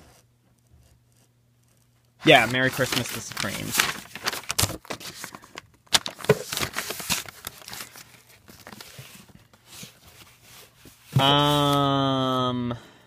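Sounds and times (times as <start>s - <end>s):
record sleeves rustling and scraping: 2.2s - 11.8s.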